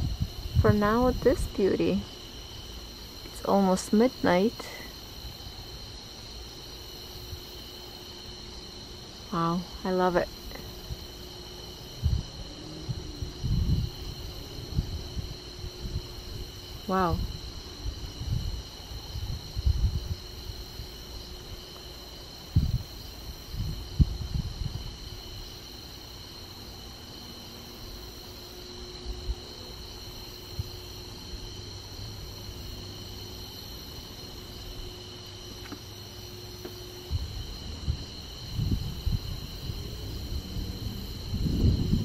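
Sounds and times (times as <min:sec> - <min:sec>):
low rumbling microphone bumps: 0:00.0 - 0:01.3, 0:12.0 - 0:16.5, 0:22.5 - 0:22.9, 0:23.5 - 0:25.1, 0:36.8 - 0:42.0
crickets chirping: 0:00.0 - 0:42.0.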